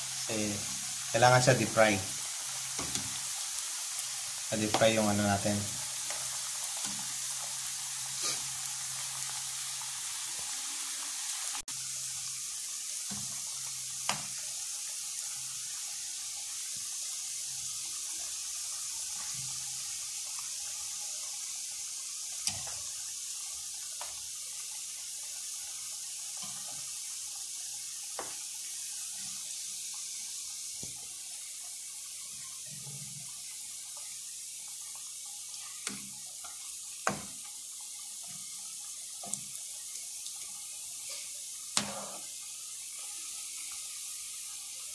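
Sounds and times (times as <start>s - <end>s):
food deep-frying in hot oil: 0.0s - 44.9s.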